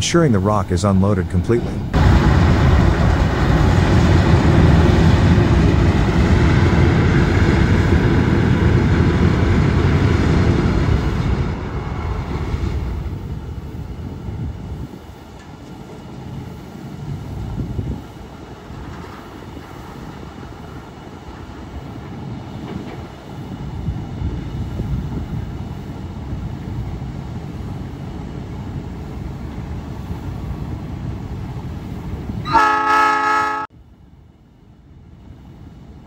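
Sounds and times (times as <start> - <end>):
diesel locomotive engine rumbling: 0.0 - 36.0
locomotive horn blast: 32.4 - 33.7.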